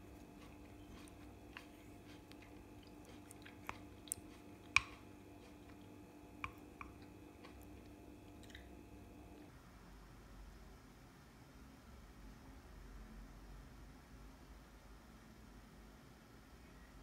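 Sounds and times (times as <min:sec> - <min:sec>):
spoon squelching in yogurt: 0:00.0 - 0:09.4
faint steady hum: 0:00.0 - 0:17.0.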